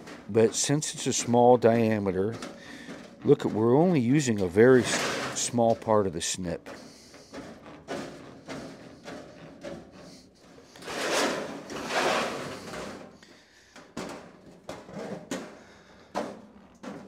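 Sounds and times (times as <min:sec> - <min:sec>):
thin sheet metal rattling: 0:00.0 - 0:05.9, 0:10.8 - 0:13.1.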